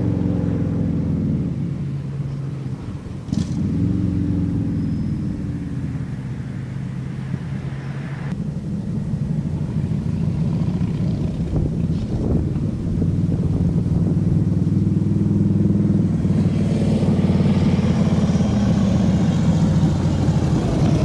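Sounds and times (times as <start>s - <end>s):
motorcycle exhaust roaring: 0.0s - 21.0s.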